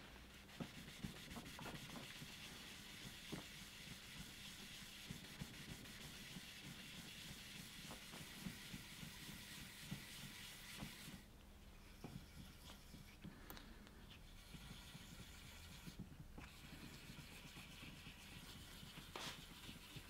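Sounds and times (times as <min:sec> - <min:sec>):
sanding block rubbing: 0:14.3 - 0:20.0.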